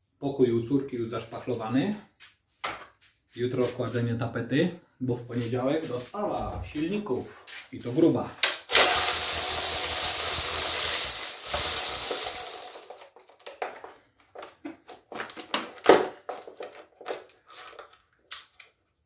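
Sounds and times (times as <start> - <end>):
ratchet tool rattling: 8.7 - 13.0.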